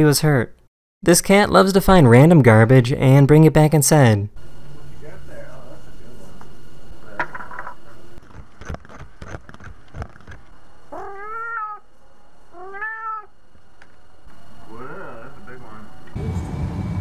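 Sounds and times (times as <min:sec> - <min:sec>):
cat meowing: 0:10.9 - 0:11.8, 0:12.5 - 0:13.3.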